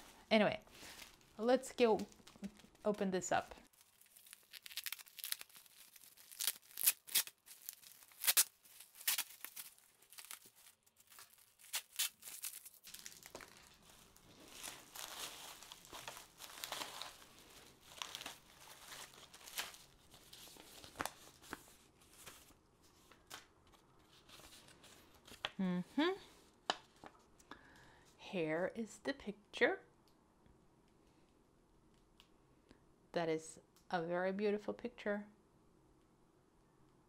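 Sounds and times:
plastic wrap crinkling and tearing: 0.0s - 3.0s, 3.6s - 23.4s.

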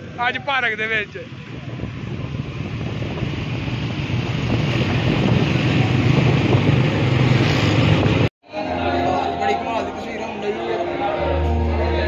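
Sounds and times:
wind buffeting microphone: 1.4s - 8.3s.

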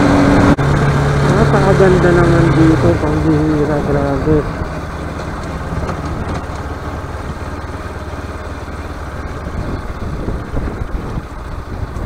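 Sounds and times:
motorcycle engine running: 0.0s - 12.0s
road noise: 0.0s - 12.0s
wind noise: 9.0s - 12.0s.

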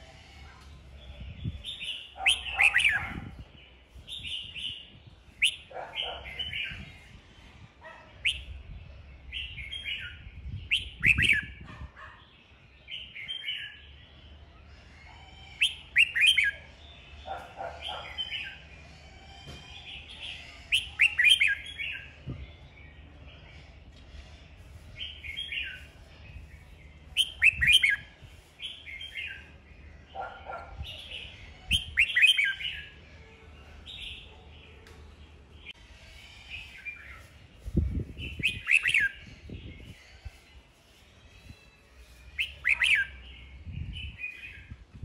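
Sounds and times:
bird singing whistled phrases: 10.7s - 11.5s, 15.6s - 16.6s, 20.7s - 21.6s, 27.2s - 28.0s, 42.4s - 43.2s.

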